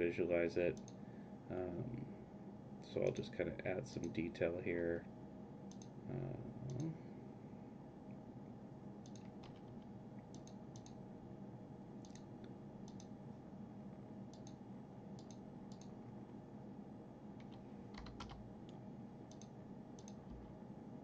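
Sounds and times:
low room hum: 0.0 - 21.0
computer mouse clicking: 5.7 - 5.9, 9.0 - 11.0, 12.0 - 13.1, 14.3 - 14.6, 15.2 - 16.0, 17.4 - 20.5.

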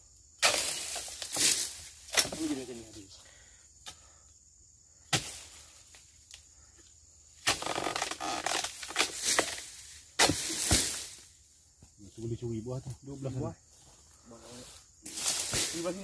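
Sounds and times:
chisel chopping into palm frond: 0.4 - 2.6, 5.1 - 5.5, 7.4 - 9.6, 10.2 - 11.1
leafy rustling and crackling: 0.4 - 3.1, 7.4 - 12.5, 13.9 - 16.0.

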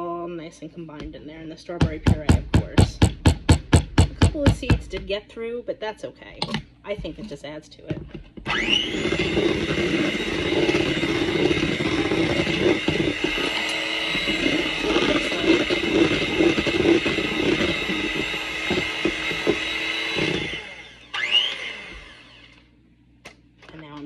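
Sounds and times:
electric hand mixer running: 8.4 - 22.6.

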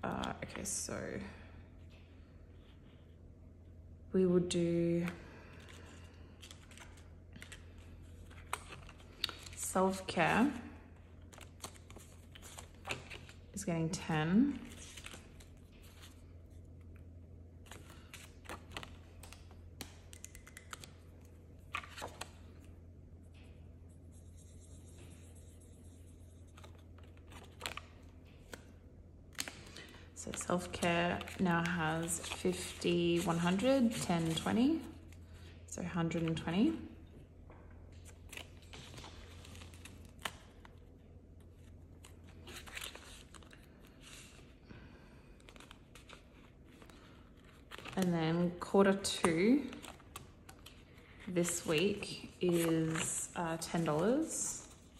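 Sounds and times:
banknotes and plastic rustling: 29.4 - 35.5, 45.2 - 54.9
hands handling paper and plastic: 45.4 - 48.1, 49.0 - 54.9.

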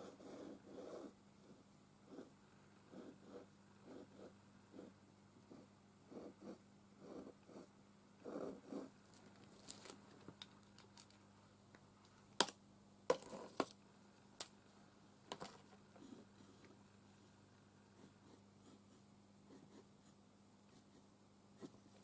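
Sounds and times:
pen scratching on paper: 0.0 - 2.3, 2.9 - 7.7, 18.0 - 22.0.

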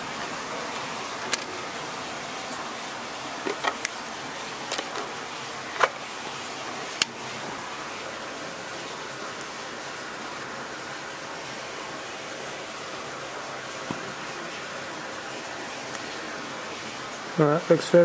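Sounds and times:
steady hiss: 0.0 - 18.0
metal cover clicks and knocks: 3.5 - 3.9.

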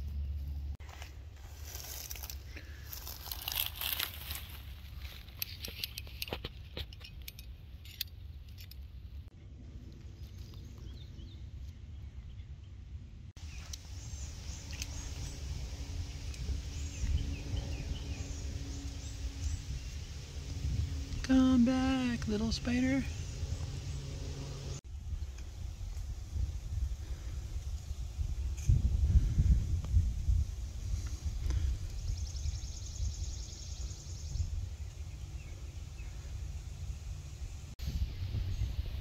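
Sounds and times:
dense crackling rustle: 0.4 - 10.7
wind rumble on microphone: 8.6 - 39.0
birds chirping: 10.0 - 24.8, 31.1 - 39.0.

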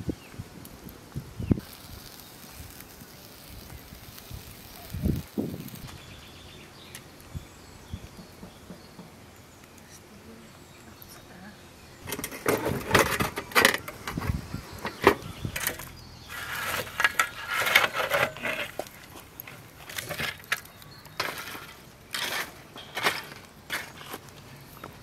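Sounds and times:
charcoal clattering onto metal tray: 12.0 - 14.3, 14.9 - 24.2.

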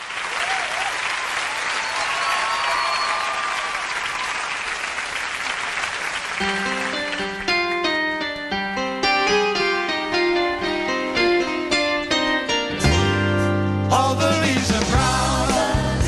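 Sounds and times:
audience applause: 0.0 - 7.8
faint cheering: 0.1 - 6.9
piano melody: 6.4 - 16.0.

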